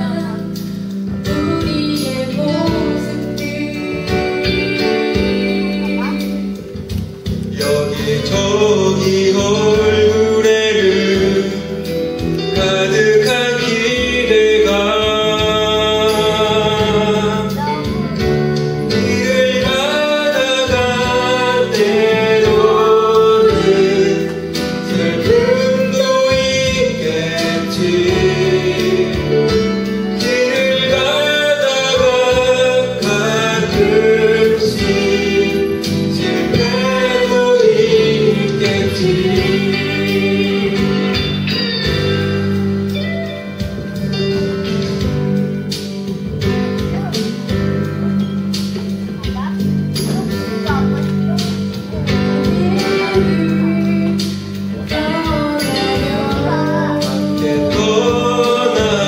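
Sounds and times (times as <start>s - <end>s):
woman singing: 0.0s - 0.6s, 1.3s - 6.6s, 52.4s - 59.0s
man singing: 0.0s - 45.1s, 45.9s - 59.0s
instrumental accompaniment: 0.0s - 59.0s.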